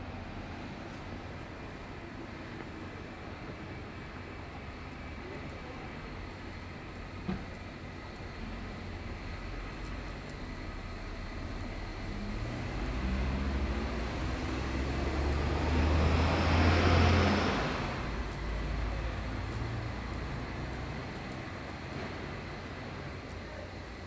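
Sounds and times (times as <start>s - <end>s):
traffic background: 0.0s - 24.0s
vehicle driving past: 11.8s - 22.5s.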